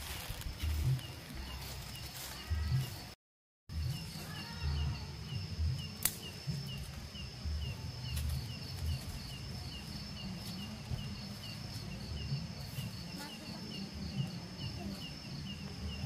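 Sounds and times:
insects trilling and chirping: 0.0 - 16.0
sharp click: 6.0 - 6.3.

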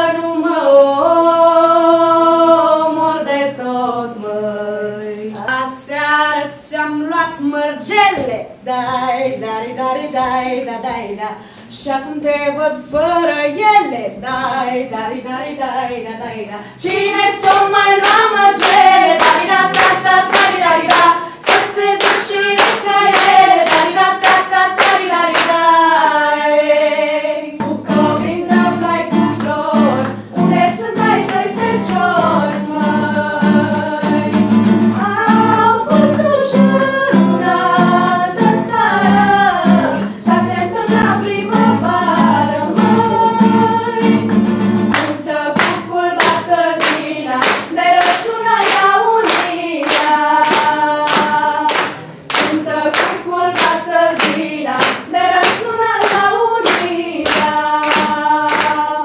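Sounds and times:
girls singing together: 0.0 - 59.0
hand clapping: 17.4 - 25.8, 27.6 - 32.8, 42.2 - 59.0
acoustic guitar strumming: 27.6 - 46.5.

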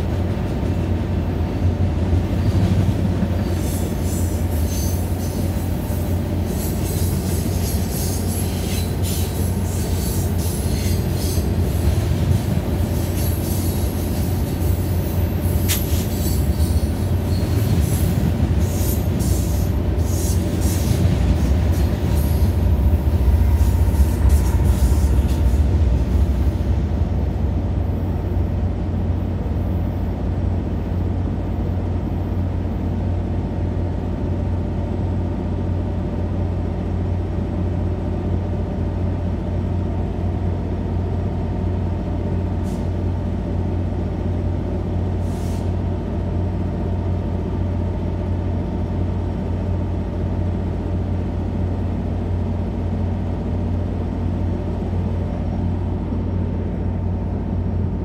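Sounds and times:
idling locomotive rumble: 0.0 - 58.0
freight train wheels squealing: 3.1 - 26.6, 45.2 - 45.9.

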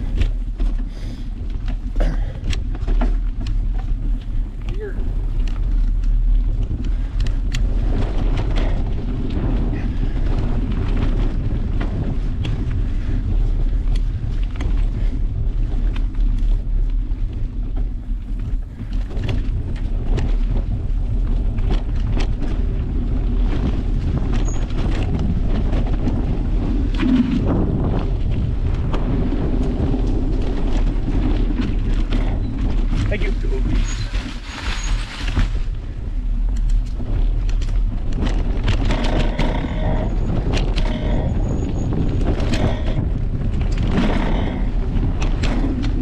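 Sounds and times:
bike rattling over rough ground: 0.0 - 46.0
wind buffeting microphone: 0.0 - 46.0.

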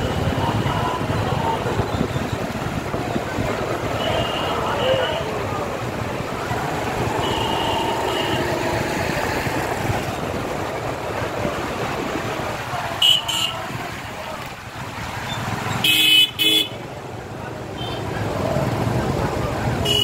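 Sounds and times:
motorcycle engines running: 0.0 - 20.0.

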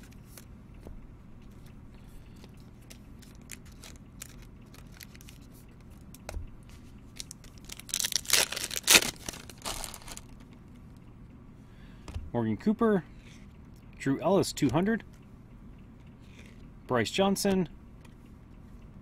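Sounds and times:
wrapper crinkling and tearing: 3.2 - 5.5, 7.2 - 10.4.

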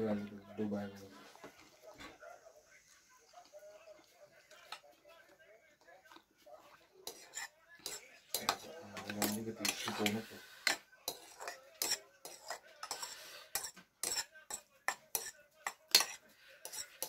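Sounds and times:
cutlery clinking against ceramic bowl: 7.0 - 17.0.

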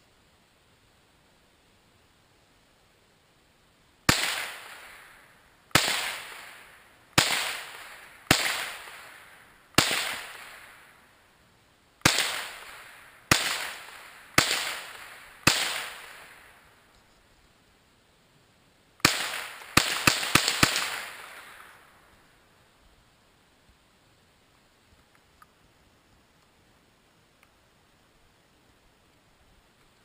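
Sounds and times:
rifle shots echoing: 4.1 - 11.1, 12.0 - 16.8, 19.0 - 22.2.

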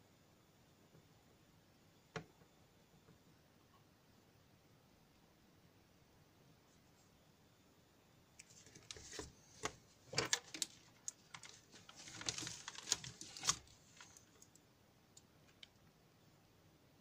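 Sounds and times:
test leads and wires being handled: 8.4 - 14.6.

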